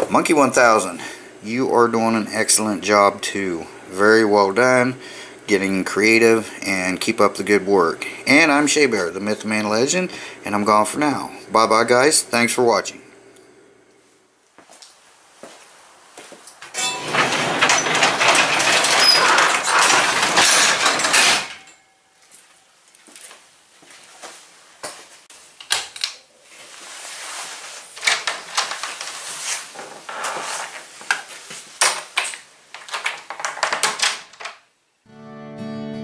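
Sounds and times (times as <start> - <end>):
knocks and clicks: 16.7 - 21.7
garage door rattling down: 16.7 - 21.8.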